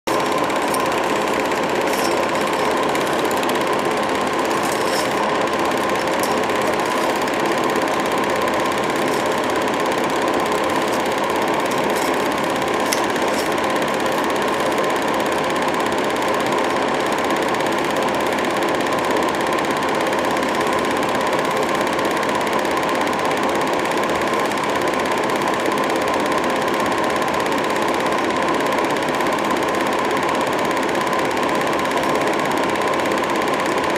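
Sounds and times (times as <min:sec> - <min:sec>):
steady hum: 0:00.0 - 0:19.1
film projector running: 0:00.0 - 0:33.9.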